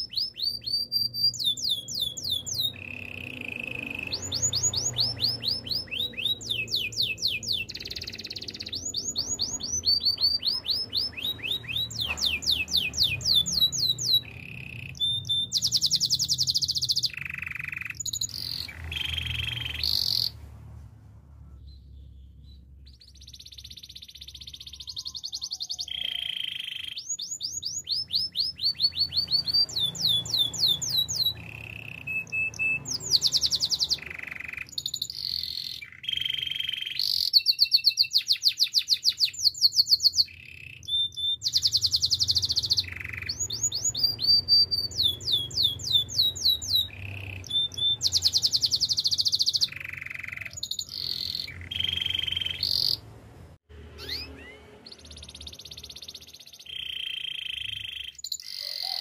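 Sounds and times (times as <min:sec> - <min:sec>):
canary singing trills: 0:00.0 - 0:20.6, 0:21.5 - 0:59.0.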